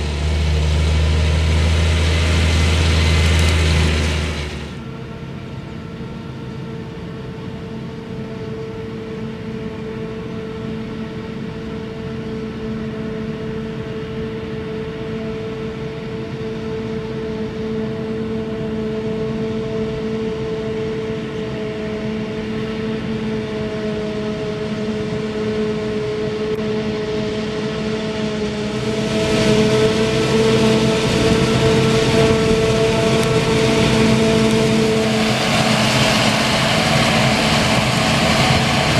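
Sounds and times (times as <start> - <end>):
tractor engine: 0.0 - 6.4, 17.0 - 38.9
forage harvester humming: 0.0 - 38.9.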